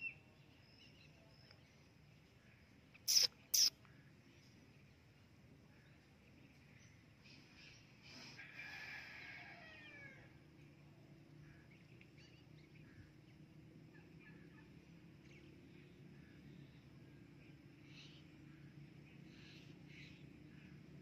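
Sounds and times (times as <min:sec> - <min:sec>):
soft bird chirps: 0:00.0 - 0:05.1
parakeet warbling chatter: 0:03.1 - 0:03.7.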